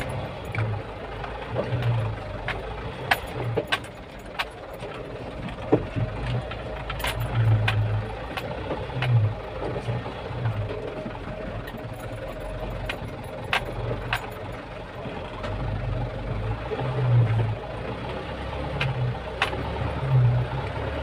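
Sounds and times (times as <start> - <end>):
cab rattling and knocking: 0.0 - 15.6
truck engine running: 0.0 - 21.0.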